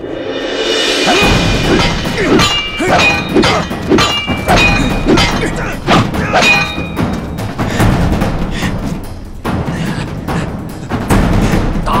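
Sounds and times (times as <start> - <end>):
fighters grunting: 1.0 - 6.9
metallic clangs of sword fight: 1.1 - 7.3.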